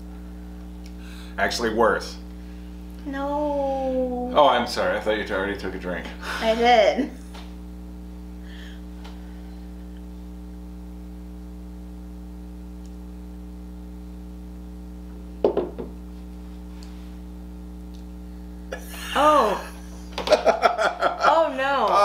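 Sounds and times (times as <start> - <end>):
low electrical hum: 0.0 - 22.0.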